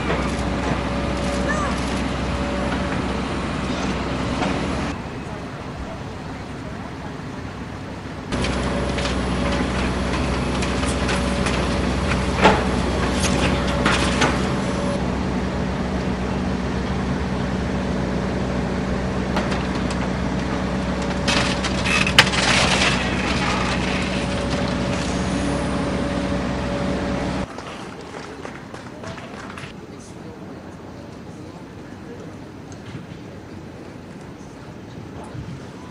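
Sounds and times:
diesel engine running: 0.0 - 27.5
debris crashing down: 8.3 - 15.0, 19.2 - 27.4
wood cracking and splintering: 8.3 - 15.0, 19.3 - 25.7.

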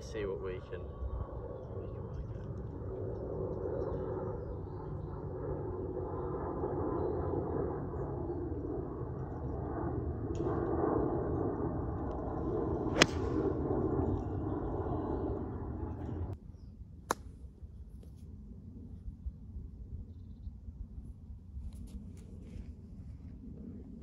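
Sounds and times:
golf club striking ball: 12.9 - 13.5.

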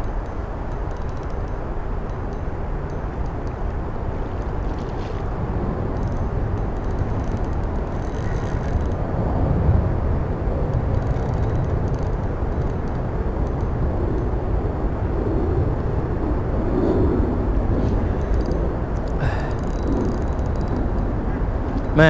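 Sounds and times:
fishing reel ticking: 0.0 - 4.6, 5.9 - 9.0, 10.6 - 14.4, 17.8 - 21.2
wind buffeting microphone: 0.0 - 22.0.

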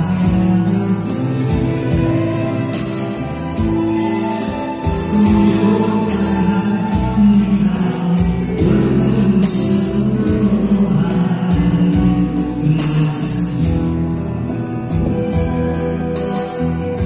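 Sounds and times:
small live band playing: 0.0 - 17.0.

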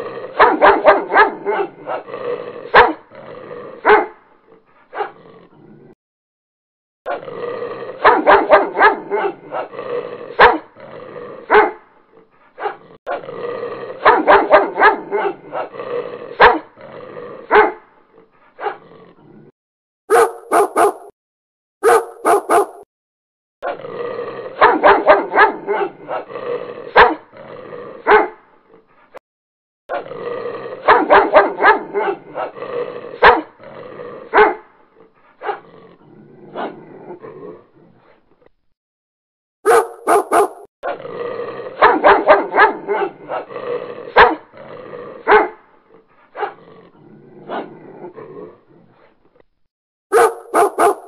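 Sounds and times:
dogs fighting barking and growling: 0.0 - 6.0, 7.1 - 21.2, 21.8 - 22.9, 23.6 - 29.2, 29.9 - 38.6, 39.6 - 49.5, 50.1 - 51.0.

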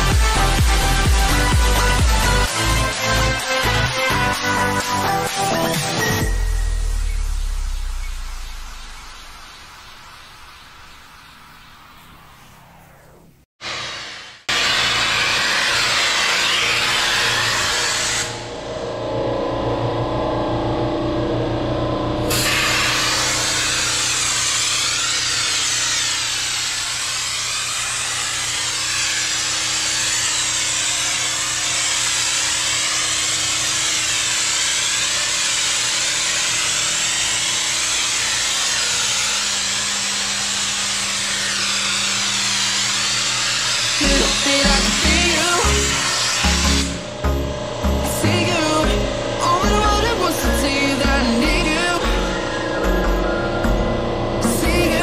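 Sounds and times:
air spray gun hissing: 22.3 - 47.1.

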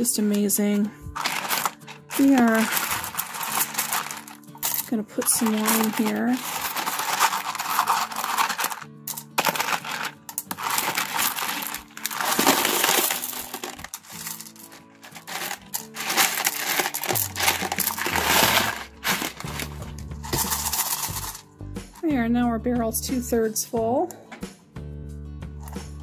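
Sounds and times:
stones rattling into rubber barrel: 1.2 - 21.4.

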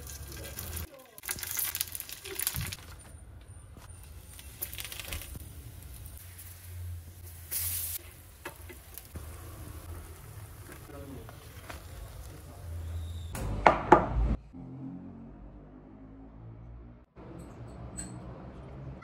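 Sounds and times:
oil sizzling in a pan: 4.4 - 13.1.

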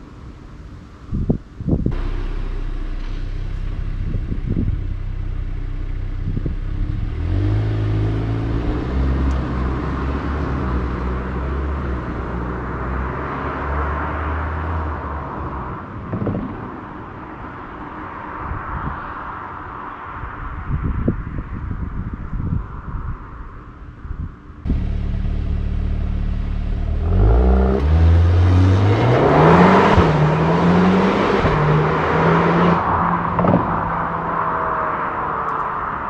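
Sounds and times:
car engine accelerating: 1.9 - 16.4, 24.6 - 36.0.

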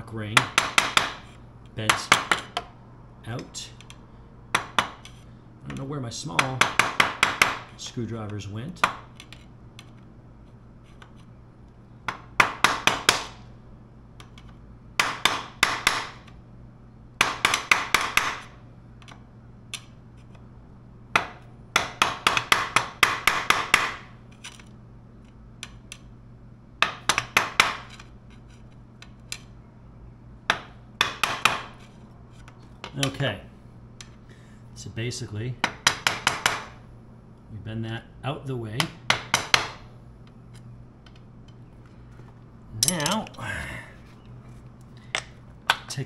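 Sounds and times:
hammer tapping on metal: 0.4 - 1.2, 5.7 - 7.7.

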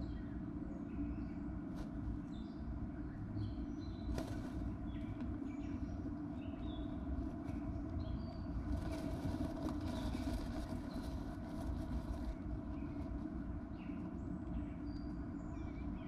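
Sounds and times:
steady low rumble: 0.0 - 16.0
bird rustling nest material: 4.1 - 5.2, 7.1 - 13.7.

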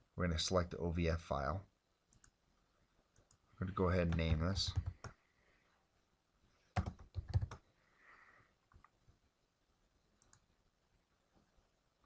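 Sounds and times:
keyboard typing: 4.0 - 5.2, 6.8 - 7.6.

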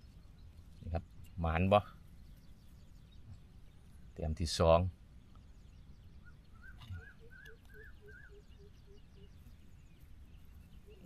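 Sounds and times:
faint bird calls: 1.7 - 11.0
low repeating bird note: 5.6 - 9.7.

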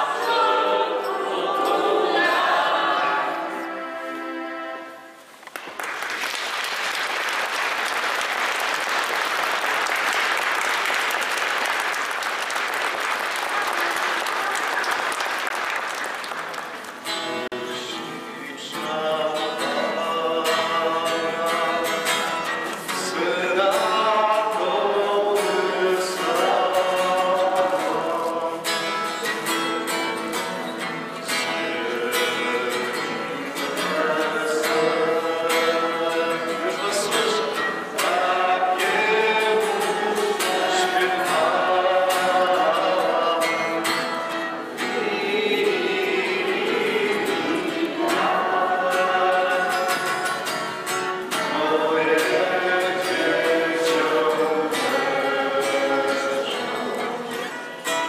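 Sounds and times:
group of voices singing: 0.0 - 5.2, 17.5 - 58.0
audience applauding: 5.4 - 17.4
guitar playing: 16.7 - 58.0.

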